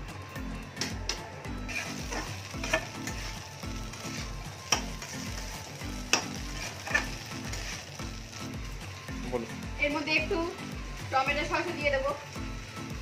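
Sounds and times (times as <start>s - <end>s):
food sizzling: 0.0s - 13.0s
spatula clanking against pan: 0.8s - 3.2s, 4.7s - 5.1s, 6.0s - 7.7s
spatula scraping pan: 1.6s - 7.9s.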